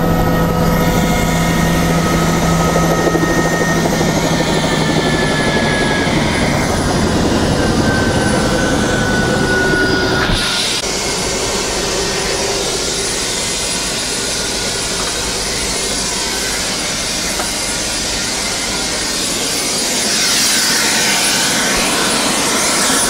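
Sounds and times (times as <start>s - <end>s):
helicopter engine and rotor running: 0.0s - 23.0s.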